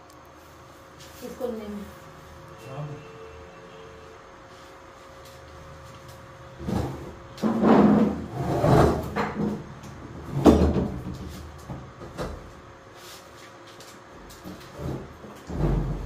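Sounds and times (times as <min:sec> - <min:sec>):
refrigerator dragged across floor: 0:06.5 - 0:09.6, 0:14.5 - 0:16.0.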